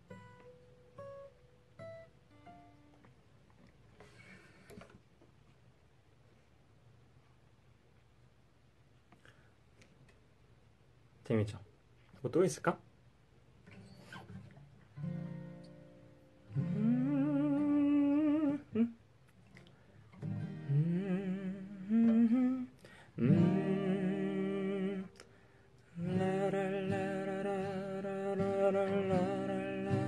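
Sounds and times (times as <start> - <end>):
acoustic guitar chords: 0.0 - 3.1, 13.6 - 30.0
man humming: 16.6 - 19.0, 20.7 - 25.2.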